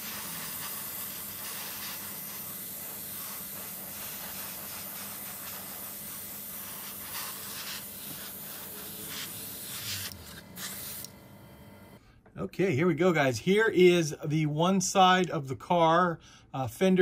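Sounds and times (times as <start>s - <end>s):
airbrush hissing: 0.0s - 11.1s.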